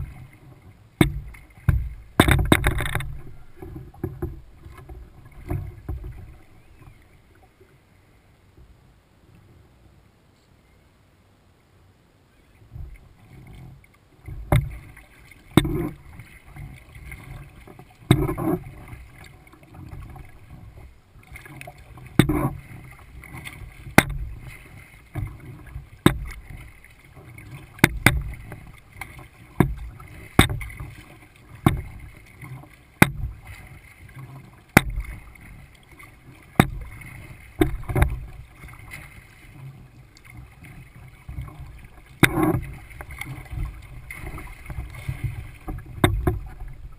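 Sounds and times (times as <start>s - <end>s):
paddle click and splash: 0.0s - 7.8s, 12.4s - 46.9s
low water rumble: 0.0s - 46.9s.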